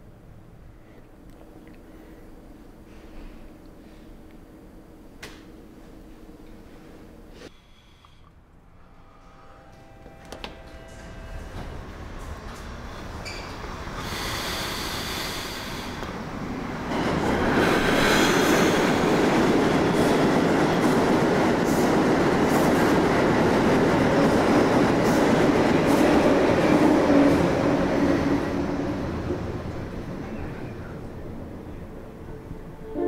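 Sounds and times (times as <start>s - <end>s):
subway train rumble: 0.0s - 7.8s, 8.4s - 33.0s
high whine: 8.1s - 14.1s.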